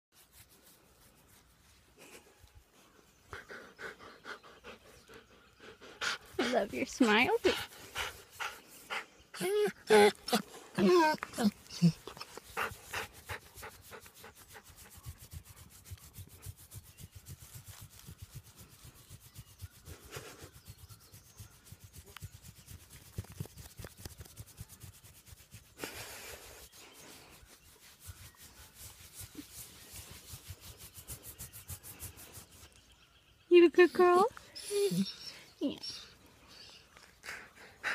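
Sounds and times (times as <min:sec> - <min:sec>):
hand rubbing thick fur: 0:00.2 - 0:02.6, 0:10.1 - 0:32.8.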